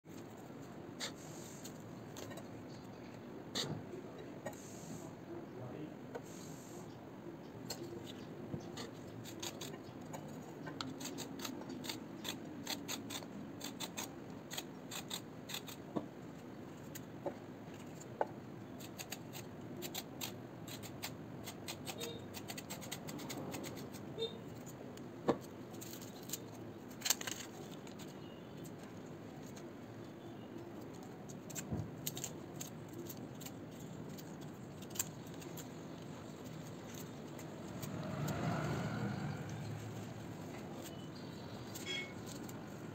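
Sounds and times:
knife scraping peeling vegetables: 1.0 - 2.9, 7.6 - 16.0, 18.7 - 29.7, 30.5 - 38.9, 39.5 - 42.9.

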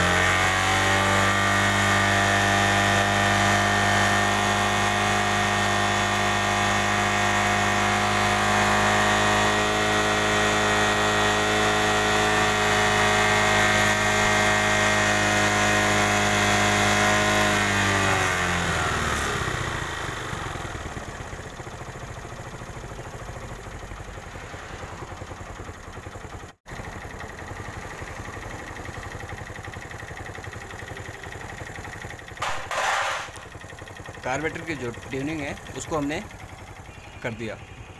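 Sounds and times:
motorcycle engine idling: 17.1 - 37.9.

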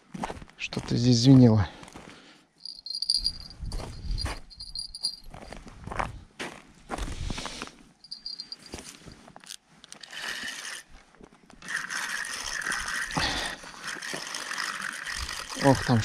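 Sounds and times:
fishing reel whirring: 2.6 - 3.5, 9.9 - 10.9, 11.6 - 16.0
fishing rod clicks and rustles: 8.1 - 16.0.

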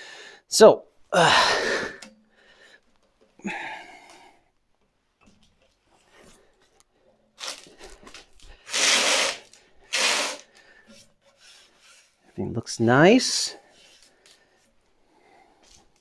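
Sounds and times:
man breathing out: 1.1 - 2.8, 3.4 - 4.5.

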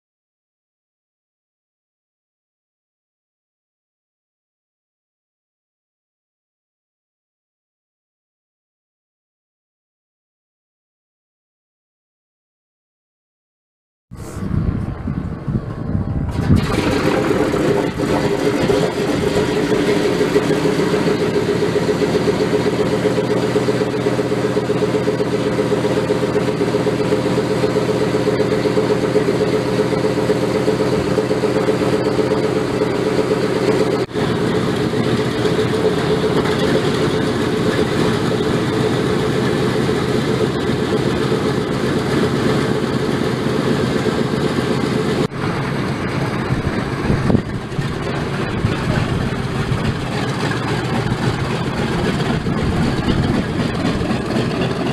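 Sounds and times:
radial aircraft engines running: 14.2 - 54.9.

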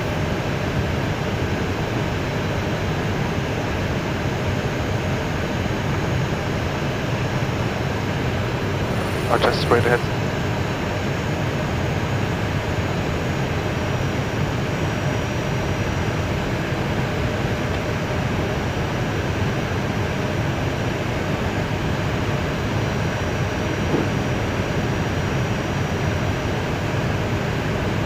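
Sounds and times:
aircraft engines rumbling: 0.2 - 28.0
faint high whine: 8.8 - 10.2.

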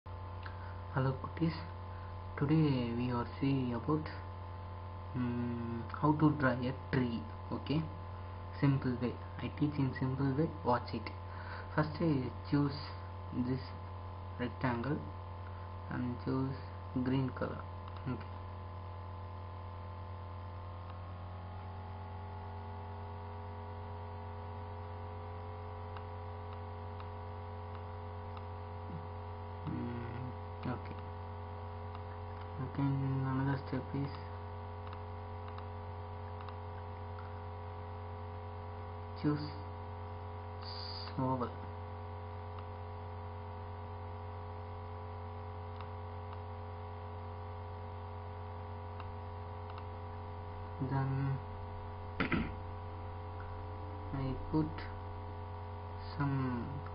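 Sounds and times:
electrical mains hum: 0.0 - 56.9
faint clicks: 34.8 - 35.7, 36.4 - 37.4, 49.0 - 49.9.

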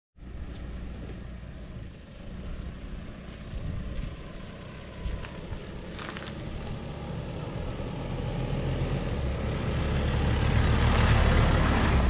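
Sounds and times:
vehicle engine rumble: 0.2 - 12.0
tyres on gravel: 3.2 - 7.5.

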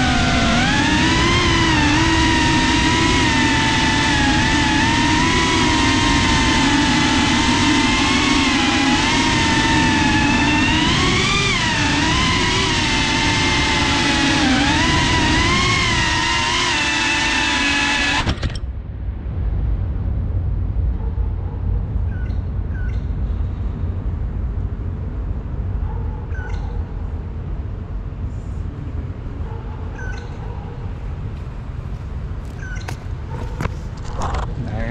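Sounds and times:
drone motors whining: 0.0 - 18.8
low steady rumble: 0.0 - 34.9.

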